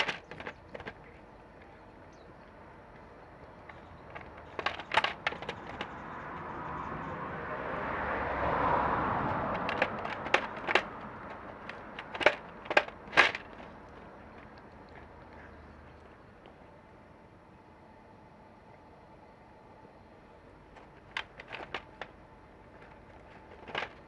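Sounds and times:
cat crunching dry kibble: 0.0s - 1.2s, 3.7s - 6.0s, 9.2s - 15.5s, 20.7s - 24.0s
broad background noise: 0.0s - 7.5s.

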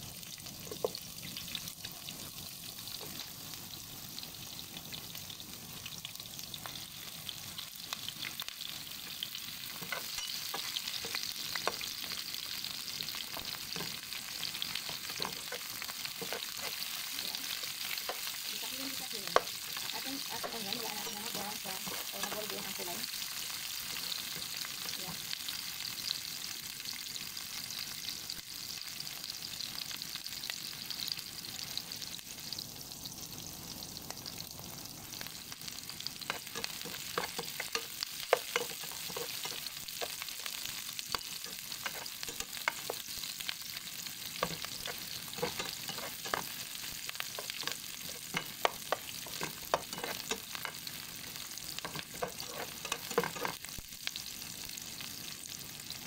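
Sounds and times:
onions sizzling in oil: 0.0s - 56.0s
metal spatula scraping a pan: 9.7s - 12.1s, 13.1s - 18.4s, 36.2s - 43.4s, 44.3s - 50.9s, 51.8s - 53.7s.

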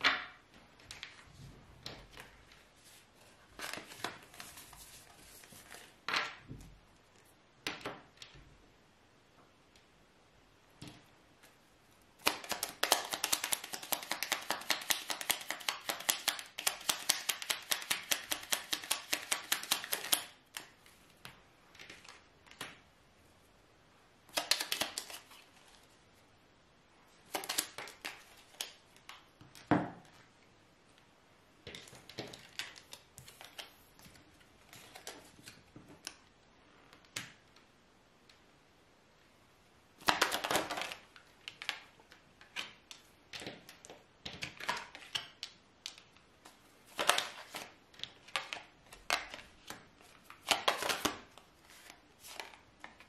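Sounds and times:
cards being shuffled: 1.8s - 6.3s, 12.2s - 21.0s, 24.3s - 25.9s, 27.2s - 29.7s, 31.7s - 36.2s, 40.0s - 53.0s.

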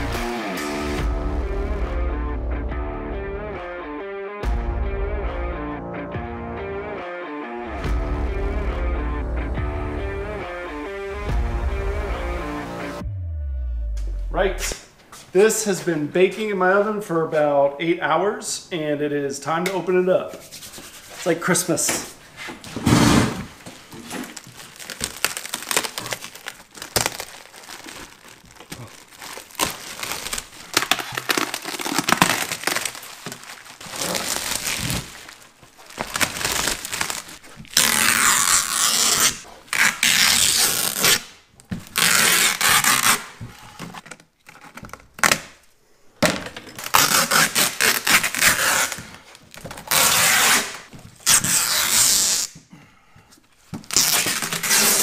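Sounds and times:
plastic film crinkling and tearing: 23.6s - 45.6s, 46.8s - 52.6s, 53.8s - 55.0s.

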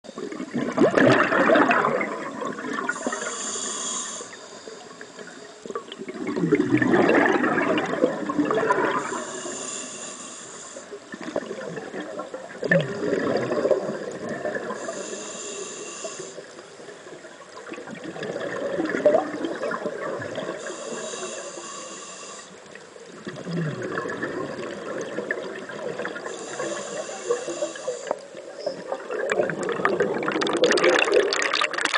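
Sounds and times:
exhaled air bubbling: 0.1s - 4.6s, 5.6s - 9.8s, 10.8s - 31.9s
regulator hiss: 2.9s - 5.6s, 8.9s - 11.4s, 14.6s - 16.8s, 20.6s - 23.1s, 26.1s - 28.6s.

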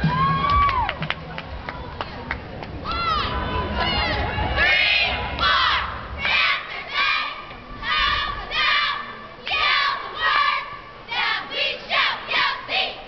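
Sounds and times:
cheerleaders shouting in unison: 2.8s - 13.0s.

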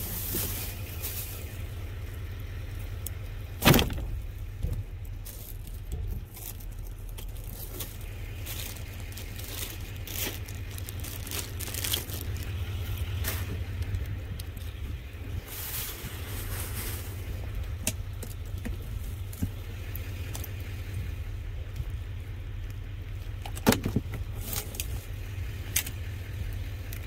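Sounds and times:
plastic bags rustling: 0.0s - 2.0s, 5.1s - 14.8s, 15.4s - 19.5s
steady low rumble: 0.0s - 27.0s.

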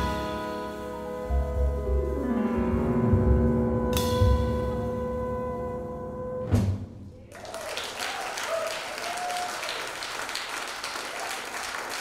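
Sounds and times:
jazz band final chord: 0.0s - 6.7s
audience applause: 7.3s - 12.0s.

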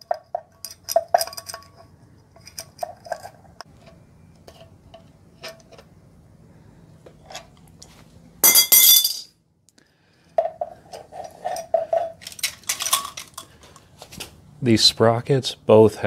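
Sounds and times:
metal chain clinking and rattling: 0.0s - 3.4s, 11.3s - 13.5s.

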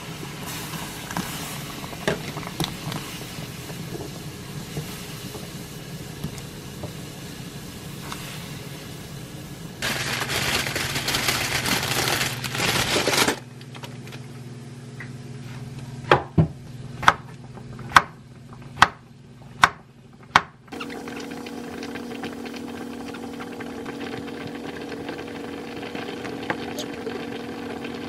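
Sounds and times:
plastic bag crinkling: 9.8s - 14.3s.

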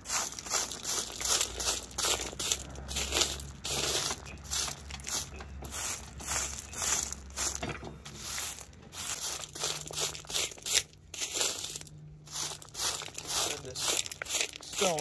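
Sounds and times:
broom sweeping stones: 0.0s - 15.0s.

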